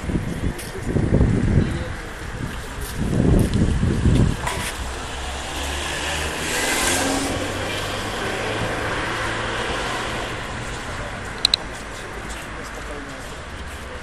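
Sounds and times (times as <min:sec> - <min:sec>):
car passing: 0:03.8 - 0:14.0.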